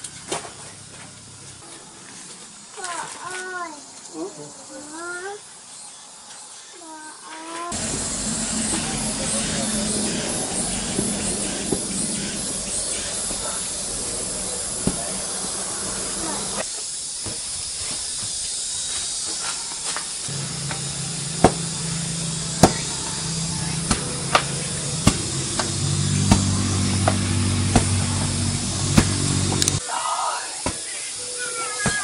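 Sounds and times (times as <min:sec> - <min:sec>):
steady hiss: 0:07.7 - 0:32.0
low steady hum: 0:07.8 - 0:16.6, 0:20.3 - 0:29.8.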